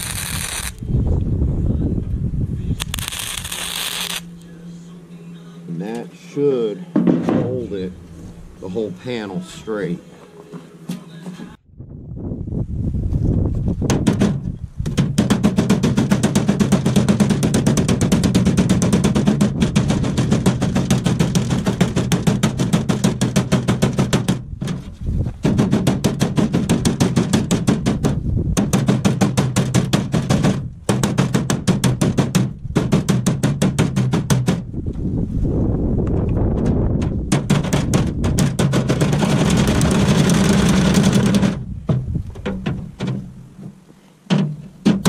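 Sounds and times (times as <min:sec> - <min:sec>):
welder arc crackling and buzzing: 0:00.0 - 0:00.8, 0:02.7 - 0:04.5.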